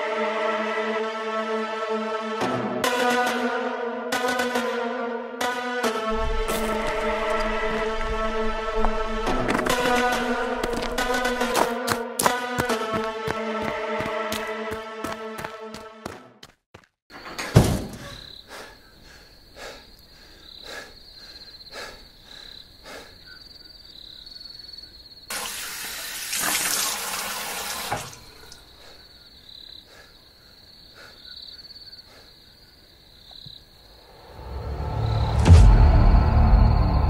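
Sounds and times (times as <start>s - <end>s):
crickets chirping: 6.1s - 12.6s, 17.1s - 37.0s
sharp hit: 34.5s - 37.0s.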